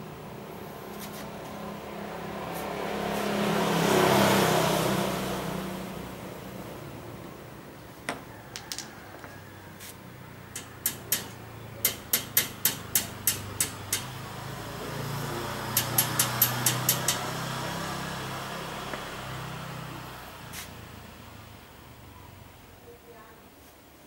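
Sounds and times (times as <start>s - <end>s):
hammer tapping metal: 10.5s - 14.2s, 15.7s - 17.4s.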